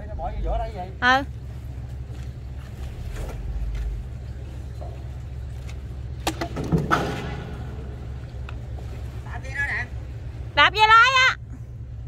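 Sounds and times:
boat engine humming: 0:00.0 - 0:12.0
sharp knocks and clatter: 0:05.7 - 0:08.8.

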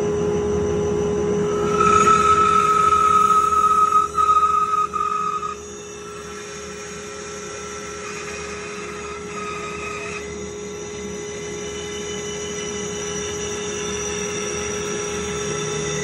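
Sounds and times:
bandsaw cutting wood: 0:01.5 - 0:12.7.

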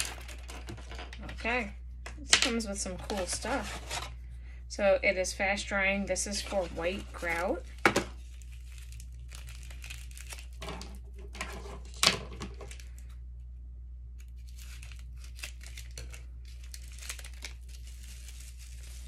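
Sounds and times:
plastic packets crinkling: 0:00.0 - 0:00.9, 0:06.3 - 0:13.1, 0:14.2 - 0:19.0.

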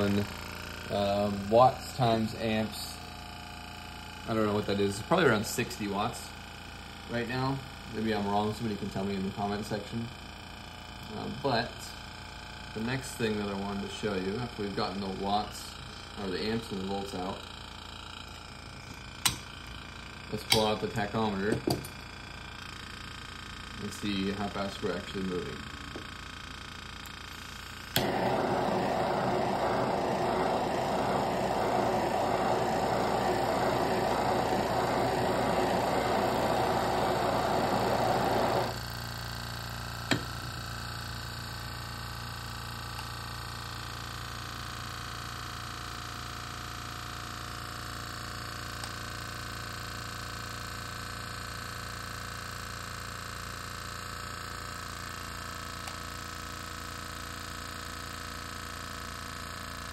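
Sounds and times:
faint steady hum: 0:23.7 - 0:38.8
blowtorch hissing: 0:27.3 - 0:38.9.

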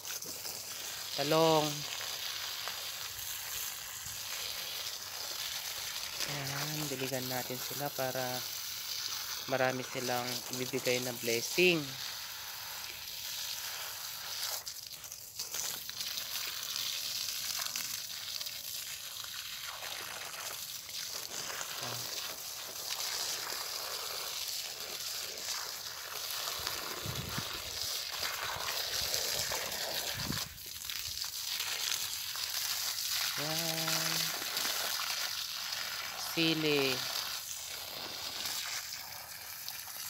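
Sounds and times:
hose water spraying on plants: 0:00.0 - 0:40.0.

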